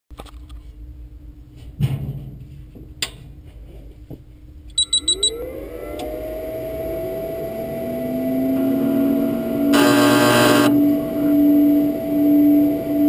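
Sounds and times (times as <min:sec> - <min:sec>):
motor whine and hum: 0:05.1 - 0:13.0
electronic beeps: 0:09.8 - 0:10.7.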